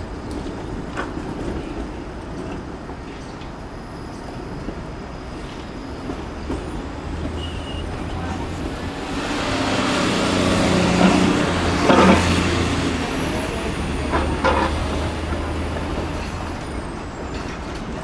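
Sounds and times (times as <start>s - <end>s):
streetcar rolling rumble: 0.0s - 18.0s
wheels clanking over track: 5.4s - 18.0s.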